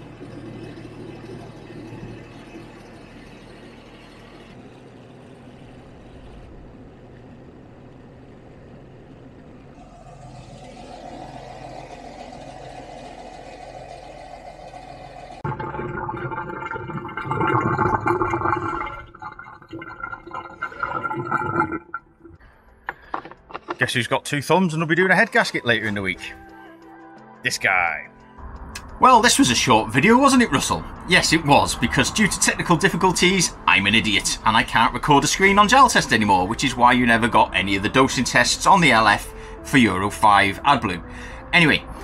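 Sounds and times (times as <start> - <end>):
truck diesel engine idling: 0.0 - 15.5, 28.4 - 42.0.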